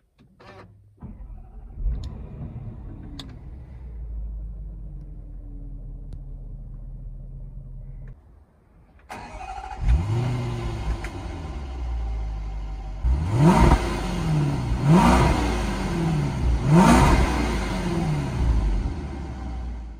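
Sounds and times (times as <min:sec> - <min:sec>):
car engine revving and idling: 0:09.1 - 0:19.9.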